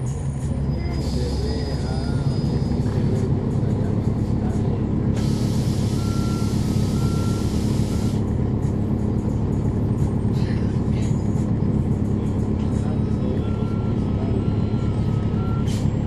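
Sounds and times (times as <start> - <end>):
bus diesel engine running: 0.0 - 16.0
air release hiss: 5.2 - 6.0.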